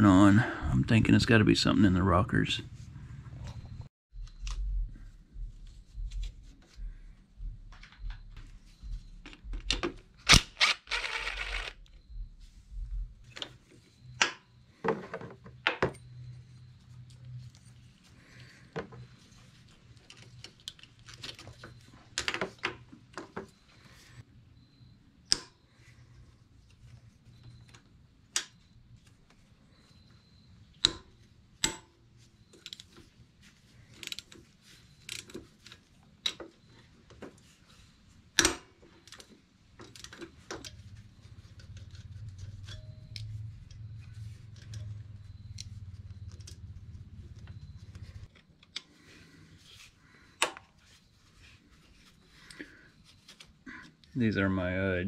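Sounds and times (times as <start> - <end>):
low steady hum: 0.0 - 14.8, 39.8 - 54.9.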